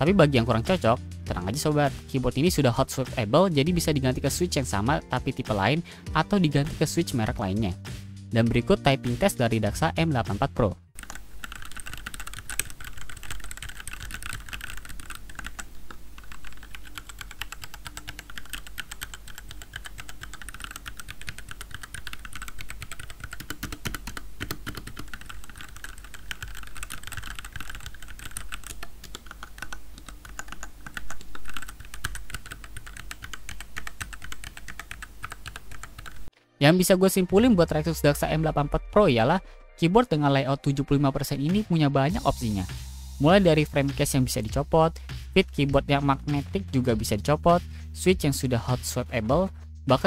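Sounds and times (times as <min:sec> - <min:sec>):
fast mechanical keyboard typing: 0:11.0 - 0:36.3.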